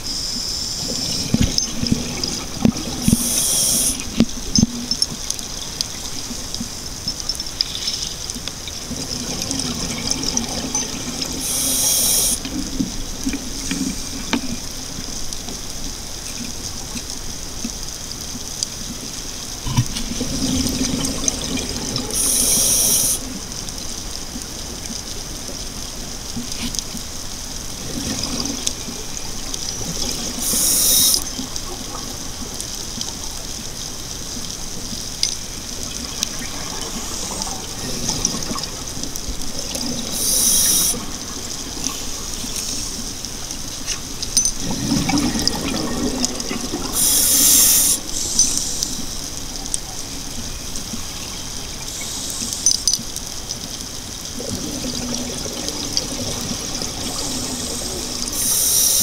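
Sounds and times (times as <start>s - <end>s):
exhaled bubbles gurgling: 0.8s - 6.8s, 7.6s - 15.0s, 18.9s - 27.0s, 34.4s - 59.0s
underwater hiss: 2.9s - 4.2s, 11.4s - 12.6s, 22.0s - 23.4s, 30.2s - 31.4s, 36.5s - 38.1s, 39.9s - 43.2s, 44.6s - 49.4s, 51.2s - 52.8s, 55.0s - 59.0s.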